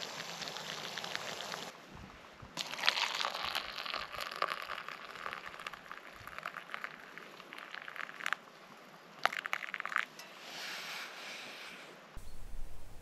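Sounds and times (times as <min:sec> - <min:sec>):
coffee fizzing: 0:00.0 - 0:01.7, 0:02.6 - 0:08.4, 0:09.2 - 0:10.1
hot water pouring into cup: 0:00.0 - 0:01.7, 0:02.6 - 0:08.4, 0:09.2 - 0:10.1.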